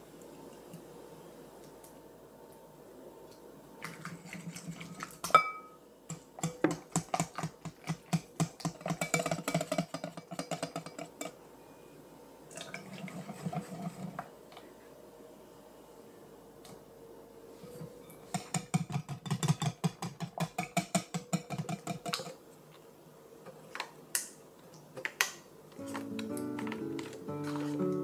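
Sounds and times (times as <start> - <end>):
whisk strokes in batter: 13.0 - 14.2.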